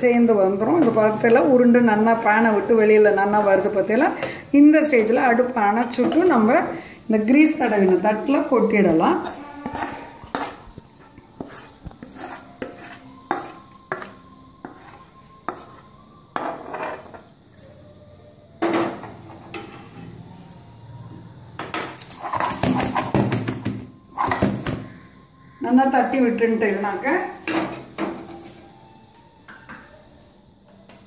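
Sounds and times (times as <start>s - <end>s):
metal spatula scraping a pan: 0.5s - 5.0s, 7.8s - 17.3s, 22.0s - 23.4s.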